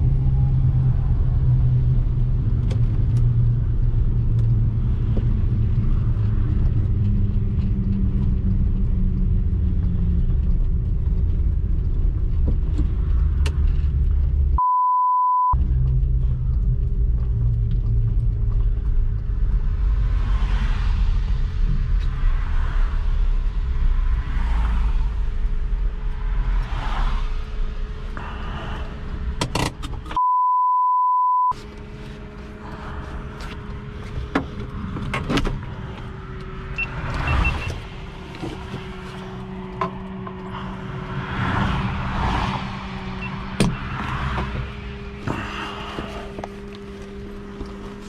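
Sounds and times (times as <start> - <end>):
engine low rumble: 0.0 - 48.0
censor bleep: 14.6 - 15.6, 30.2 - 31.5.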